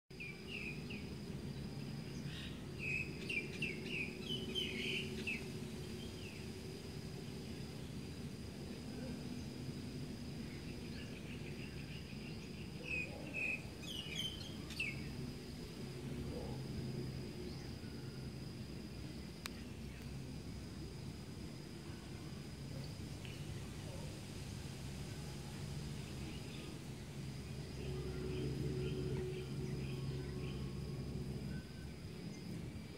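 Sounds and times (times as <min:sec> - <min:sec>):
small birds chirping: 0:00.1 - 0:06.5, 0:10.4 - 0:15.6
steady low hum: 0:00.1 - 0:32.9.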